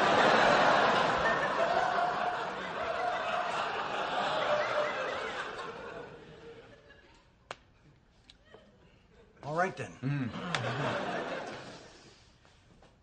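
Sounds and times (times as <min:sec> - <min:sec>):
audience laughing: 0:00.0 - 0:07.4, 0:10.0 - 0:12.2.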